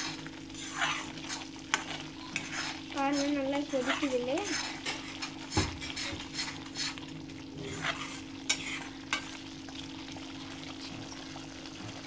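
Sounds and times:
metal spoon scraping a pan: 0.0 - 9.4
gravy bubbling and sizzling: 0.0 - 12.0.

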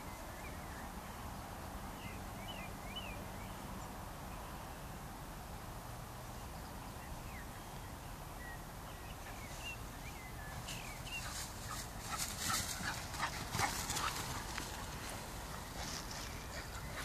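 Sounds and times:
low background hiss: 0.0 - 17.0
dog running through grass: 10.6 - 17.0.

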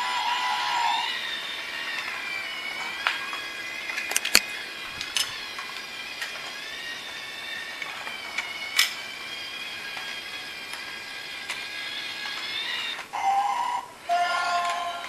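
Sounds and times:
toy train motor whirring: 0.0 - 15.0
sharp plastic clicks: 4.0 - 5.3.

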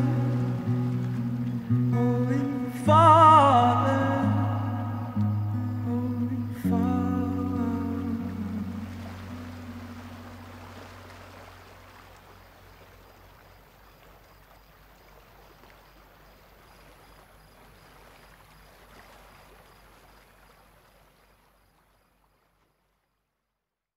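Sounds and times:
person humming: 0.0 - 0.8, 1.9 - 9.0.

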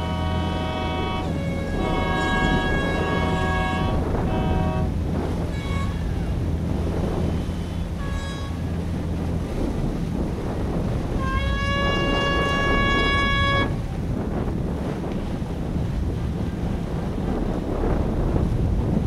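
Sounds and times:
boat horns blowing: 0.0 - 10.0, 10.6 - 14.3
low engine hum: 0.0 - 19.0
water noise: 0.0 - 19.0
wind: 0.0 - 19.0.

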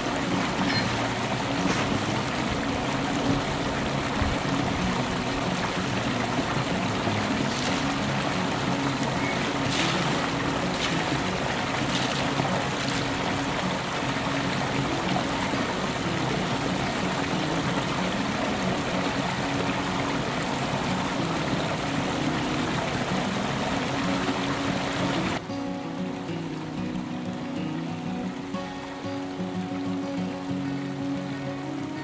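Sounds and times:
water rushing through dam: 0.0 - 32.0
boots stepping on stone: 9.7 - 13.2.

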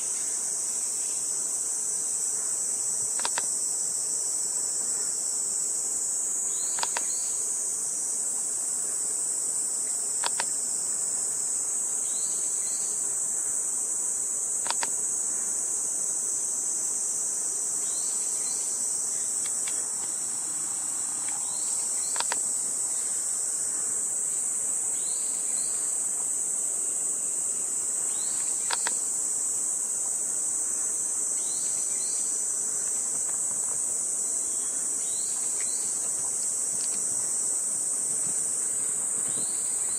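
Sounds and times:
insect chorus buzzing: 0.0 - 39.9
faint sharp clicks: 3.2 - 3.5, 6.7 - 7.1, 10.2 - 10.5, 14.6 - 15.0, 22.0 - 22.4, 28.6 - 29.0.

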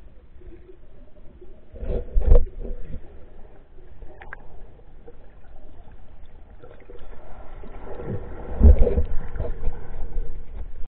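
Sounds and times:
muffled underwater water movement: 0.0 - 10.9.

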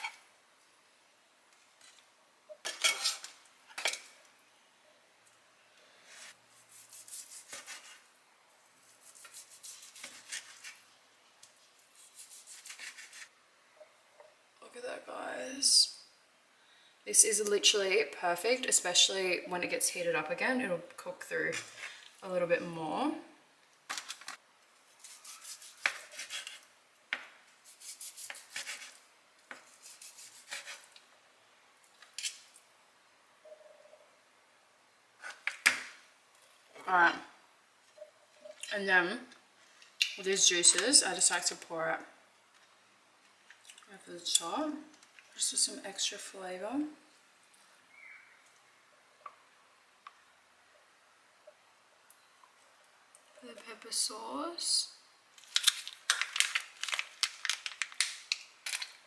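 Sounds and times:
knife scraping plastic cutting board: 7.0 - 8.1, 25.2 - 26.6.

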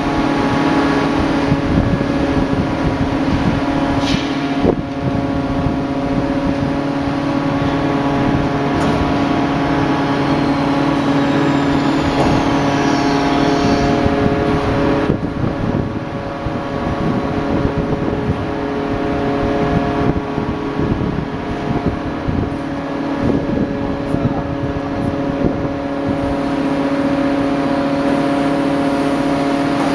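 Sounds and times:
forging machine humming: 0.0 - 29.9.

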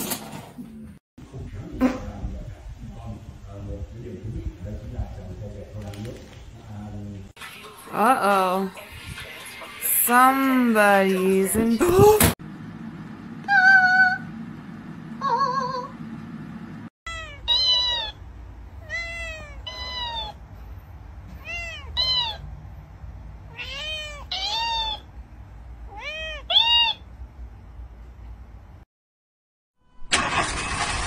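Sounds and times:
cat meowing: 17.1 - 18.2, 18.8 - 20.4, 21.4 - 22.4, 23.5 - 25.1, 25.9 - 27.0.

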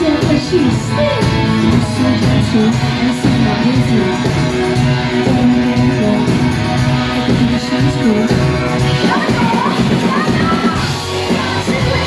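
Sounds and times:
drums: 0.0 - 12.0
electric guitar: 0.0 - 12.0
woman singing: 7.3 - 12.0.

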